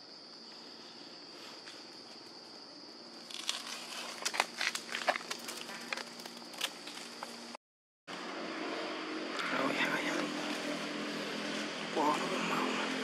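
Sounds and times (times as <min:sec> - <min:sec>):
crinkling and crackling with clicks: 0:03.2 - 0:07.4
high-pitched insect drone: 0:08.2 - 0:13.0.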